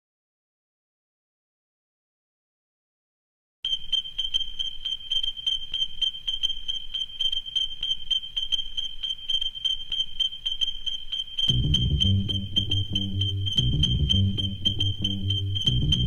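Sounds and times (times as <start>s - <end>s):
high-pitched electronic beeping: 3.7s - 16.0s.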